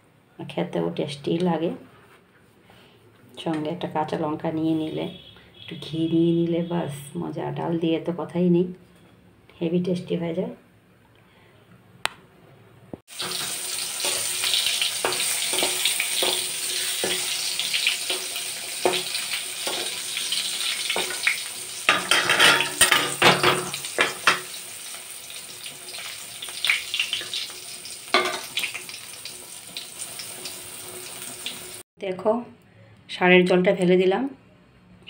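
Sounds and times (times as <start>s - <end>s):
eggplant sizzling in hot oil: 13.1s - 31.8s.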